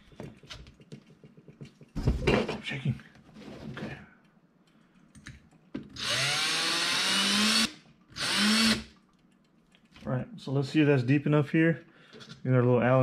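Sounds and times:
cordless drill drilling into metal: 0:06.0 - 0:08.9.

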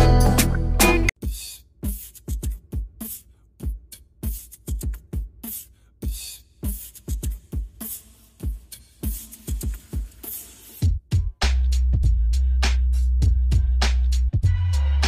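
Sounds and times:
sparse drum beat: 0:01.1 - 0:12.1.

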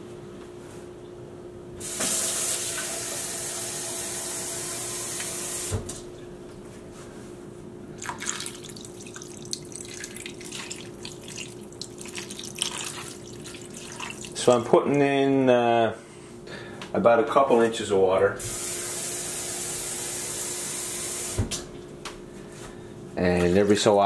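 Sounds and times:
water running with a hiss: 0:01.8 - 0:05.8, 0:08.0 - 0:14.5, 0:18.4 - 0:21.4
water splashing into a pan: 0:08.0 - 0:14.4.

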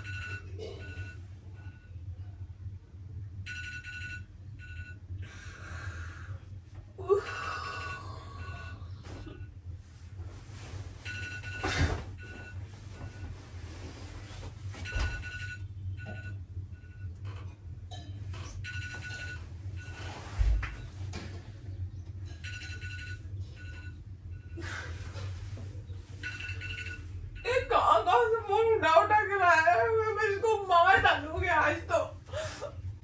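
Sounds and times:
alarm clock beeping: 0:00.0 - 0:01.9, 0:03.4 - 0:05.1, 0:11.0 - 0:13.4, 0:14.7 - 0:17.3, 0:18.5 - 0:20.5, 0:22.3 - 0:25.2, 0:26.1 - 0:28.7
rustling on a bed: 0:09.0 - 0:15.5.

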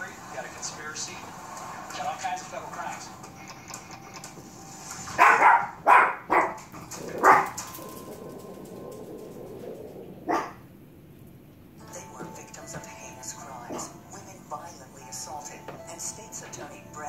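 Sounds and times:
dog barking: 0:05.1 - 0:07.6, 0:10.3 - 0:10.7.

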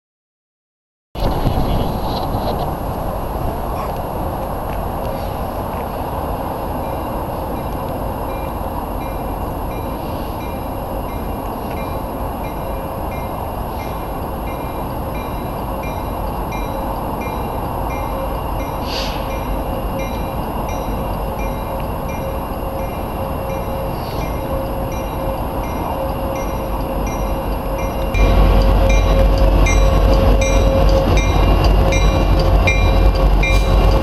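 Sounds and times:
diesel locomotives rumbling: 0:01.2 - 0:34.0
bell ringing: 0:06.8 - 0:34.0.

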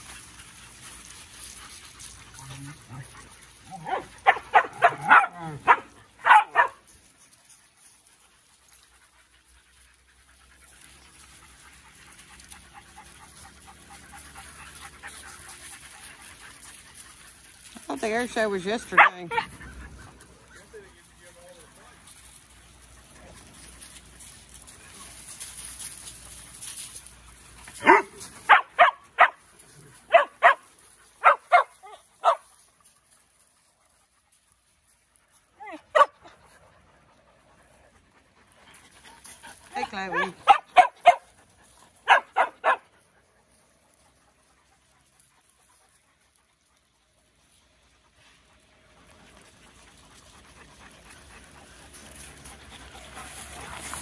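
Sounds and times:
dog barking: 0:03.8 - 0:06.8, 0:27.8 - 0:29.4, 0:30.1 - 0:30.6, 0:31.2 - 0:32.4, 0:35.7 - 0:36.2, 0:40.1 - 0:41.2, 0:42.0 - 0:42.8
dog panting: 0:05.7 - 0:54.0.

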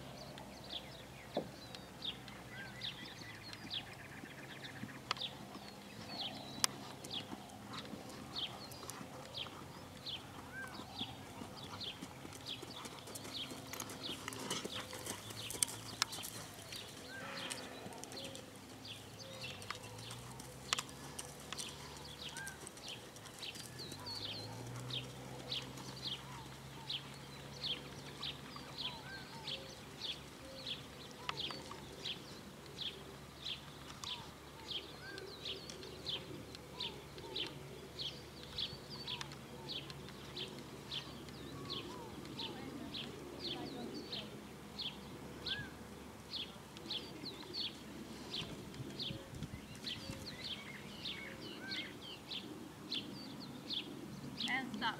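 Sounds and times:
bird chirping: 0:00.0 - 0:54.9.

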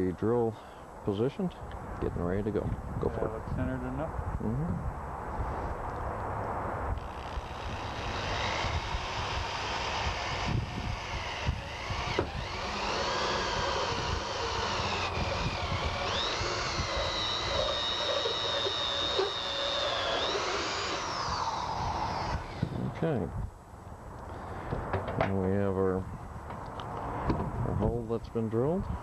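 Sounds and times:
power drill cutting sheet metal: 0:07.0 - 0:22.7.

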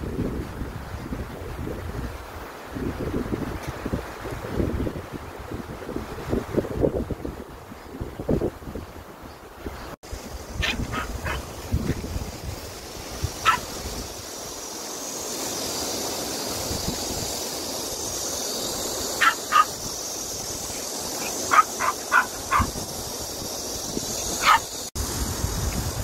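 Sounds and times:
steady high hiss: 0:00.0 - 0:26.0
small dog yipping: 0:10.6 - 0:11.4, 0:13.4 - 0:13.7, 0:19.2 - 0:19.8, 0:21.2 - 0:22.7, 0:24.4 - 0:24.7.

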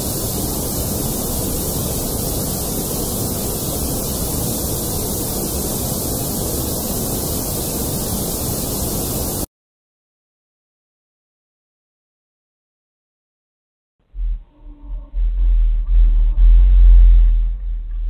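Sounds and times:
steady static hiss: 0:00.0 - 0:09.5.

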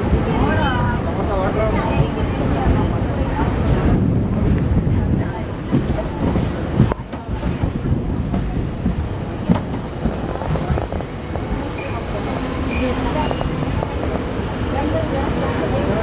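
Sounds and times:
heavy train rumble: 0:00.0 - 0:16.0
train wheels squealing on rails: 0:05.7 - 0:16.0.

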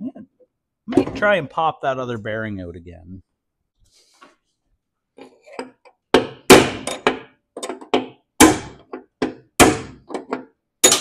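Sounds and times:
hammer striking steel punch: 0:08.4 - 0:08.8.

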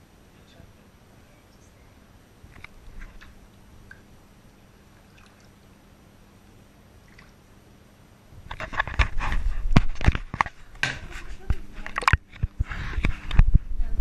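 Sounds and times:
bathwater splashing: 0:04.8 - 0:05.8, 0:07.0 - 0:07.4.

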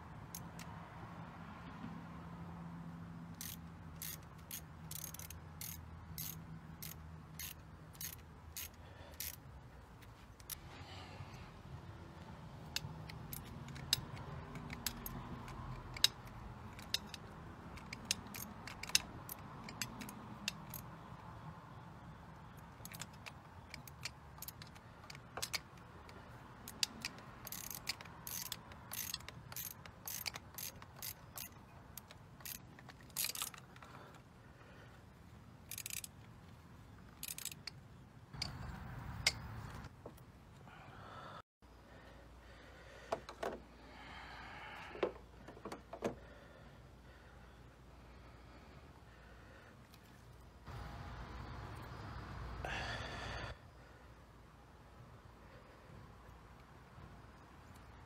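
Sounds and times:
ratchet wrench clicking: 0:00.2 - 0:00.8, 0:03.3 - 0:09.5, 0:12.6 - 0:21.5, 0:22.4 - 0:34.2, 0:35.6 - 0:36.4, 0:37.0 - 0:37.8, 0:38.4 - 0:39.9
tools and metal parts clicking: 0:00.2 - 0:00.8, 0:03.3 - 0:10.6, 0:12.6 - 0:34.3, 0:35.6 - 0:40.2.

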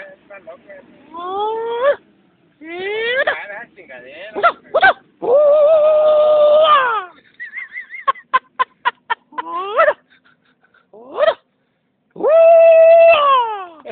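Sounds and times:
high-pitched human cries and yelps: 0:01.1 - 0:03.4, 0:04.4 - 0:07.3, 0:09.2 - 0:10.1, 0:10.8 - 0:11.6, 0:12.2 - 0:13.9.

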